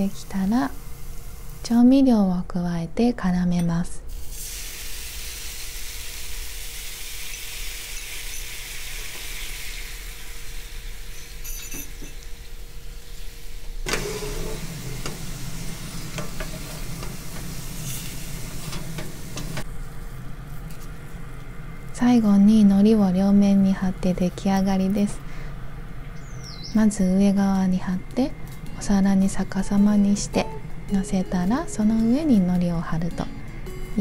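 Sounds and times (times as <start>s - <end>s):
glaze sizzling in frying pan: 0.0s - 1.8s, 4.1s - 21.2s.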